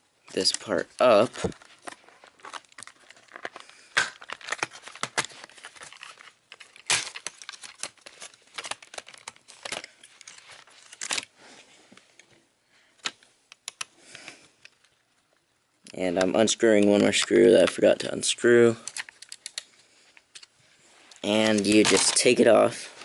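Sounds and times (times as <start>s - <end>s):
plastic case clicking and snapping: 18.8s - 19.7s.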